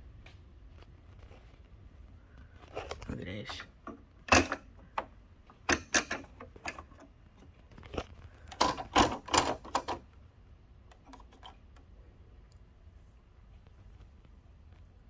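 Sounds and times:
plastic clicking and rattling: 0:03.8 - 0:10.2, 0:10.8 - 0:11.9.

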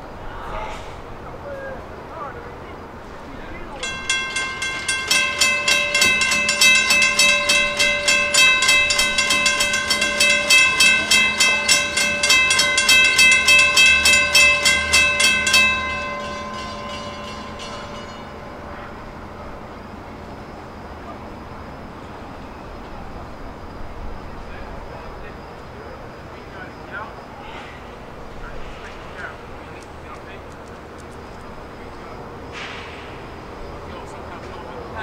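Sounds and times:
railroad crossing bell ringing: 0:03.4 - 0:24.4.

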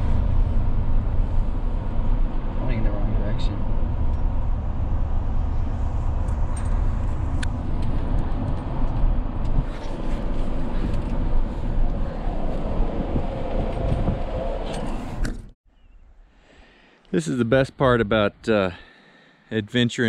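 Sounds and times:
road and engine rumble: 0:00.0 - 0:15.6.

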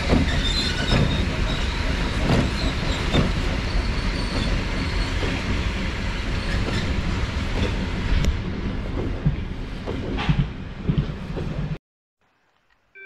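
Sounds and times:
clacks over rail joints: 0:00.0 - 0:05.7, 0:06.5 - 0:11.8
rumble of wheels on rail: 0:00.0 - 0:11.8.

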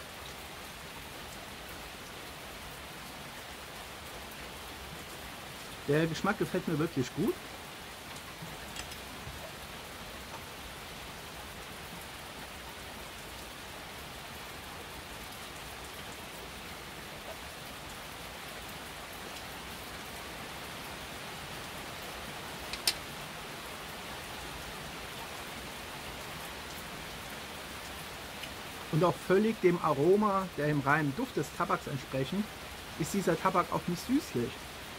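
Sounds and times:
steady rain falling: 0:00.0 - 0:34.9
sharp click: 0:22.7 - 0:23.0.

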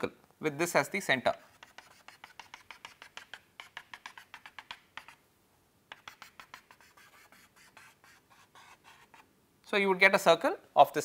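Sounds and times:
chalk tapping on blackboard: 0:01.3 - 0:05.2, 0:05.9 - 0:09.3.

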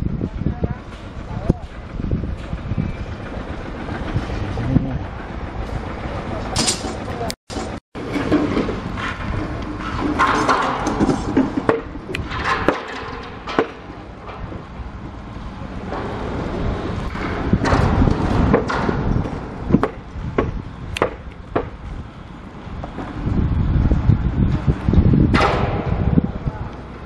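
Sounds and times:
steady low rumble: 0:00.0 - 0:27.0
knocks and clanks on steel: 0:06.6 - 0:14.7, 0:25.3 - 0:26.3.

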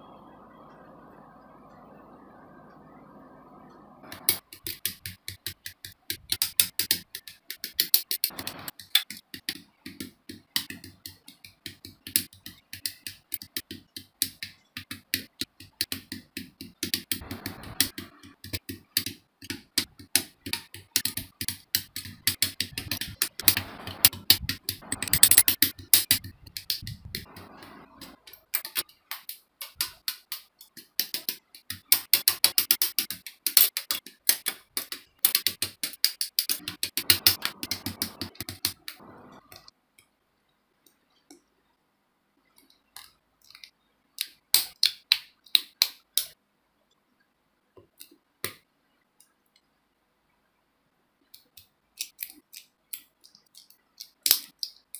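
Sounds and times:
sharp plastic clicks: 0:04.1 - 0:39.7, 0:51.3 - 0:54.9.

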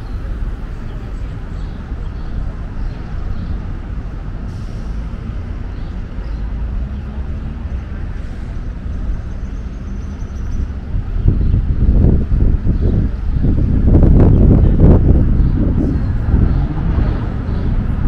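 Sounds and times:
traffic engine rumble: 0:00.0 - 0:18.0.

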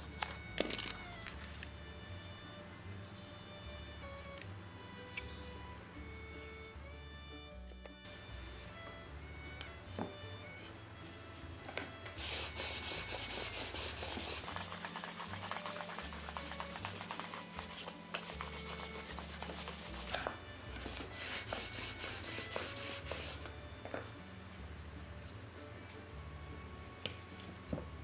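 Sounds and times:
sandpaper rubbing on wood: 0:12.2 - 0:20.3, 0:21.1 - 0:23.4.

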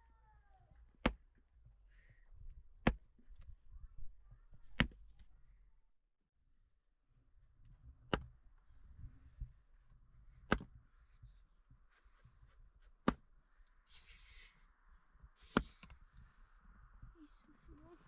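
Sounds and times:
axe chopping firewood: 0:01.0 - 0:01.3, 0:02.8 - 0:03.1, 0:10.5 - 0:10.7, 0:13.0 - 0:13.2, 0:15.4 - 0:15.9.

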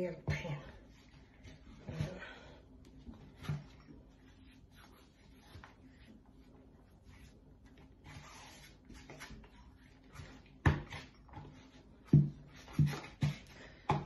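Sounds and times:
dough rubbing and squishing: 0:00.0 - 0:13.9.

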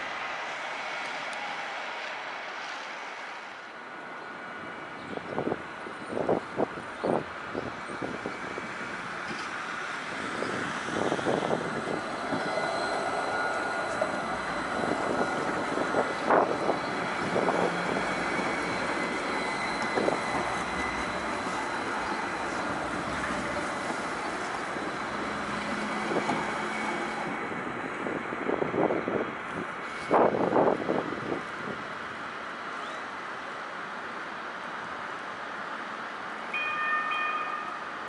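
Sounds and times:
tram running gear noise: 0:04.6 - 0:32.3.

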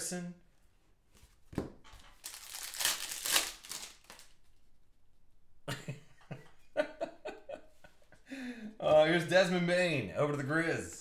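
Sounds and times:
foil wrapper crinkling and tearing: 0:02.2 - 0:04.4.

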